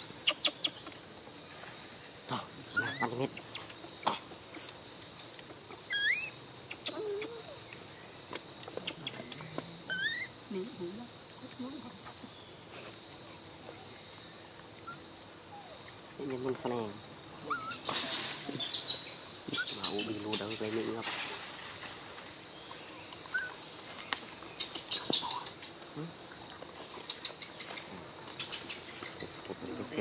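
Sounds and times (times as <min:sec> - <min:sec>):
high-pitched insect chorus: 0:00.0 - 0:30.0
squeaky rising calls: 0:02.7 - 0:03.2, 0:05.9 - 0:07.6, 0:09.9 - 0:10.4.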